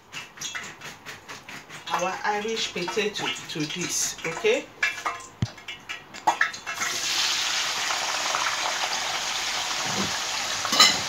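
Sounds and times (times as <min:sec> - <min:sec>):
potatoes sizzling in hot oil: 0:06.6 - 0:11.0.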